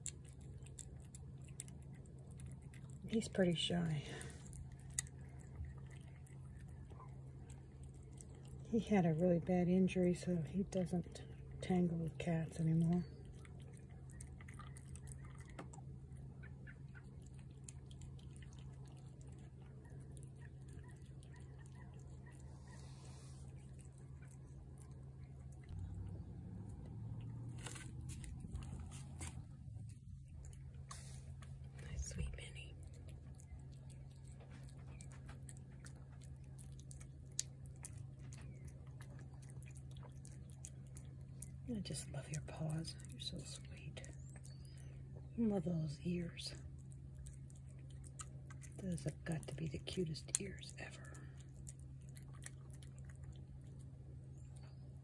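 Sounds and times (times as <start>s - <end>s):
cat chewing wet food: 0.0s - 45.4s, 46.3s - 55.0s
steady low hum: 0.0s - 55.0s.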